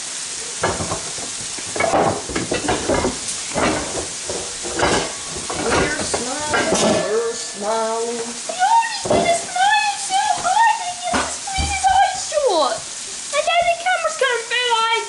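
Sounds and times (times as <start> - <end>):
food sizzling in a pan: 0.0 - 15.0
kitchen utensils clattering and scraping: 0.6 - 12.1.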